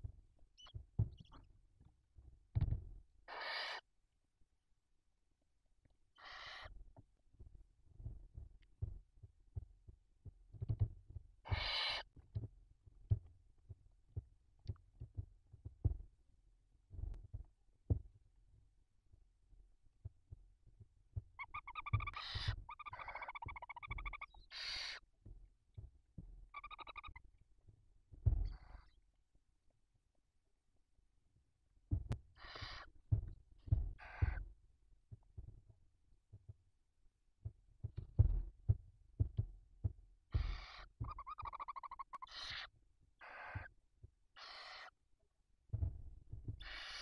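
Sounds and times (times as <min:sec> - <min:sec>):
soft low thumps: 0:00.0 - 0:01.4, 0:16.9 - 0:18.2, 0:28.1 - 0:28.8, 0:31.9 - 0:32.3, 0:33.1 - 0:35.7, 0:37.4 - 0:41.6, 0:45.7 - 0:46.7
owl hissing: 0:03.3 - 0:03.8, 0:06.2 - 0:06.7, 0:11.4 - 0:12.1, 0:21.4 - 0:25.0, 0:26.6 - 0:27.2, 0:32.4 - 0:32.9, 0:34.0 - 0:34.4, 0:40.3 - 0:43.7, 0:44.4 - 0:45.0, 0:46.6 - 0:47.0
owl chicks trilling calls: 0:03.3 - 0:03.9, 0:06.2 - 0:06.8, 0:11.4 - 0:12.1, 0:21.4 - 0:25.0, 0:26.5 - 0:27.2, 0:28.5 - 0:29.0, 0:32.3 - 0:32.9, 0:34.0 - 0:34.4, 0:40.3 - 0:43.8, 0:44.4 - 0:45.0, 0:46.6 - 0:47.0.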